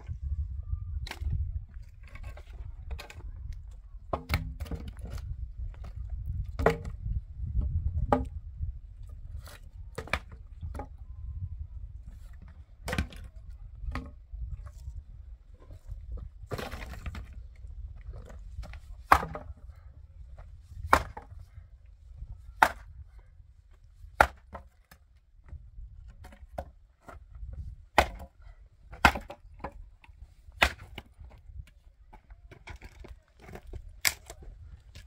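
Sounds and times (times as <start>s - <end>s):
axe chopping wood: 4.1s - 5.1s, 19.0s - 19.6s, 20.8s - 21.4s, 22.6s - 22.9s, 24.2s - 24.7s, 27.9s - 29.8s, 30.5s - 31.3s, 32.7s - 34.4s.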